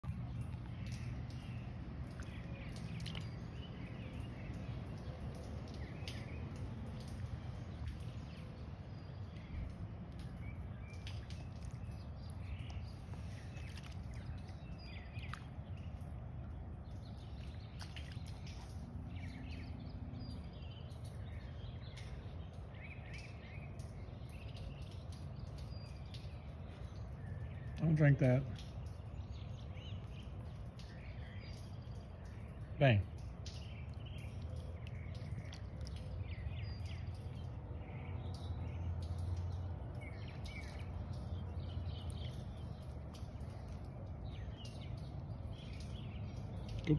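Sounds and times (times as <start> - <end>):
birds chirping: 0.0 - 46.9
dog lapping water: 10.2 - 21.4, 29.9 - 37.8.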